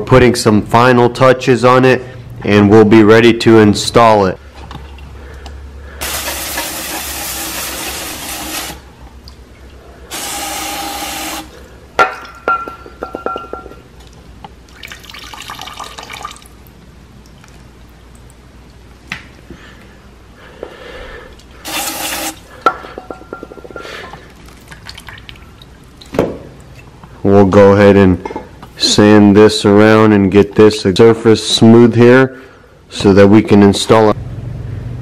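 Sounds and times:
liquid dripping into bucket: 0:09.0 - 0:09.8, 0:13.5 - 0:19.4, 0:24.0 - 0:27.1
aerosol spray hissing: 0:10.1 - 0:11.5, 0:21.7 - 0:22.4.

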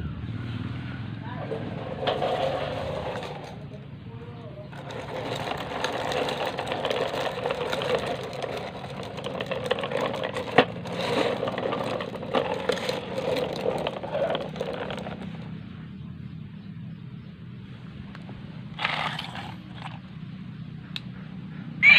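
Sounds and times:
toy truck wheels grinding on concrete: 0:01.3 - 0:03.9, 0:04.6 - 0:15.7, 0:18.1 - 0:20.2.

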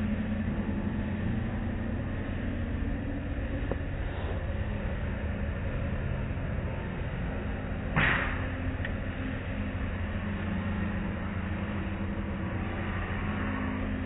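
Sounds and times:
machinery low hum: 0:00.0 - 0:14.0
loud slap against car: 0:08.0 - 0:08.5.

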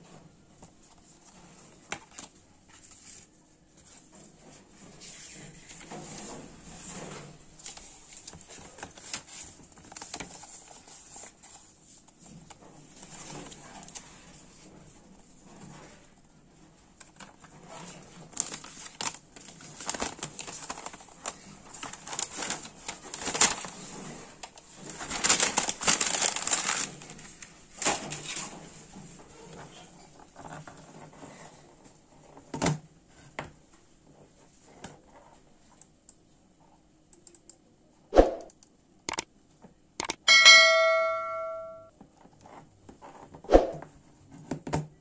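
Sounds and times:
paper rustling and crinkling: 0:00.1 - 0:32.5.

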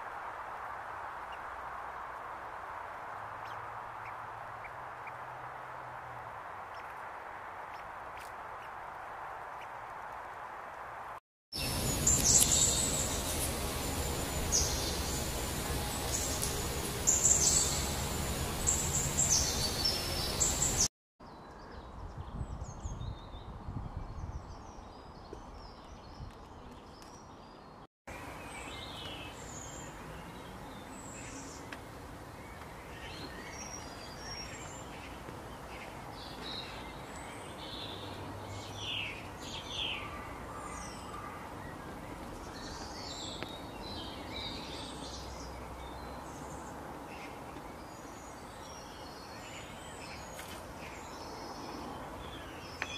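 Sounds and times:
background hiss: 0:10.1 - 0:20.9
birds chirping: 0:11.6 - 0:21.9.

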